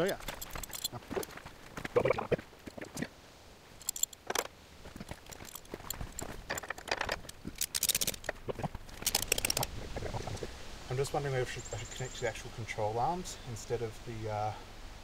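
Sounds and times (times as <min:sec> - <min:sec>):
metal hooks and buckles rattling: 0:00.0 - 0:01.5, 0:03.8 - 0:09.7.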